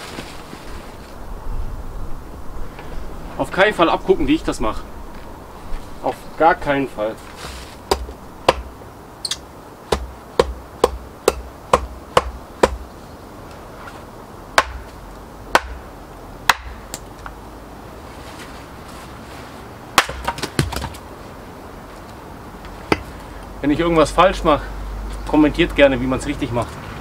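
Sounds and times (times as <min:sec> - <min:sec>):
axe splitting kindling on block: 0:20.0 - 0:21.0.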